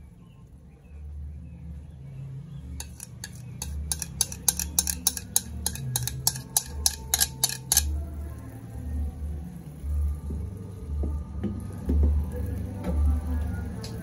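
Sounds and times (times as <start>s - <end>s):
metal spoon tapping a bowl: 2.8s - 8.0s.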